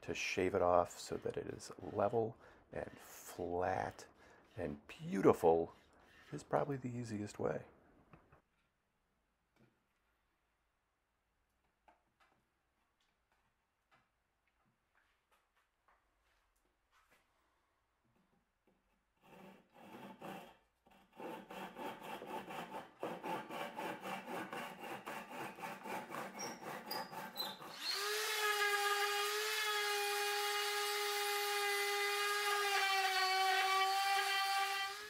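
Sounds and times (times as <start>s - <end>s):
hand saw cutting wood: 0.0s - 6.8s, 19.0s - 35.0s.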